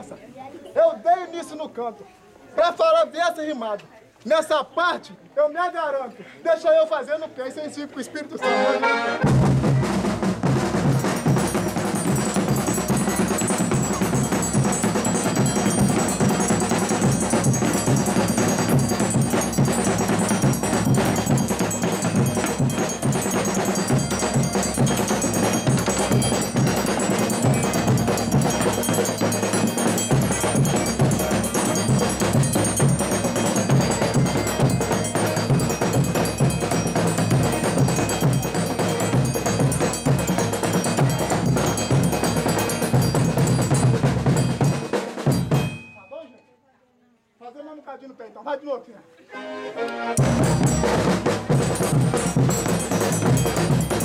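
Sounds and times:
drums struck with sticks: 9.2 - 46.1, 50.2 - 54.0
percussion fast beat: 9.2 - 46.3, 50.2 - 54.0.

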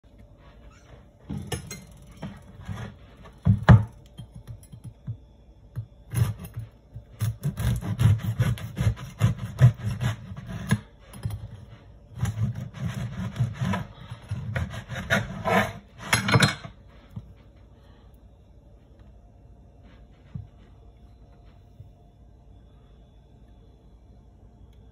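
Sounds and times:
bread knife sawing crust: 6.1 - 6.6, 7.2 - 10.9, 12.2 - 16.2.

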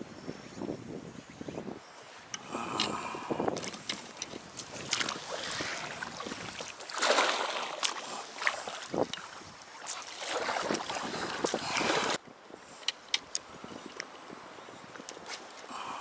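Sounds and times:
water washing along hull: 2.4 - 12.2
paddle strokes splashing: 3.5 - 12.2.

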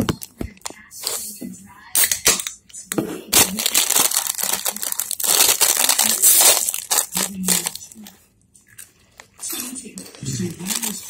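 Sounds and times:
foil snack bag crinkling: 3.3 - 8.1, 9.5 - 11.0.

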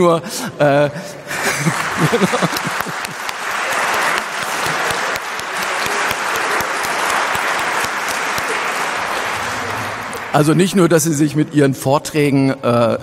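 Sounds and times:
audience applauding: 1.4 - 10.7.

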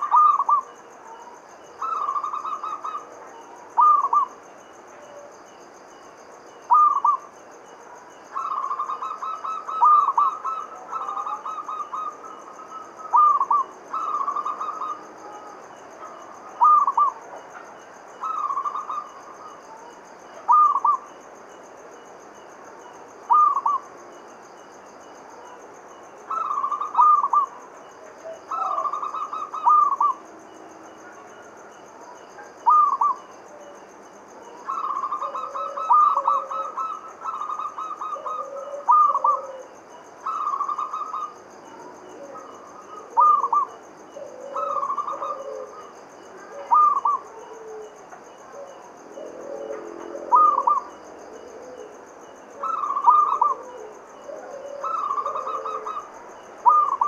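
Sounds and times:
dove cooing: 0.0 - 4.4, 6.7 - 21.1, 23.3 - 23.8, 26.3 - 27.6, 28.2 - 30.2, 32.4 - 33.8, 34.4 - 57.0
lower-pitched coo notes: 34.7 - 39.7, 40.3 - 52.0, 52.6 - 57.0.

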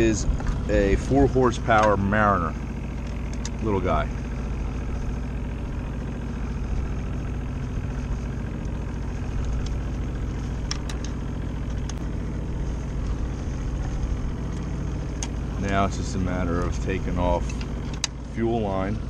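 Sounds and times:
boat engine running: 0.0 - 19.0
light metallic clicks: 17.4 - 18.2.

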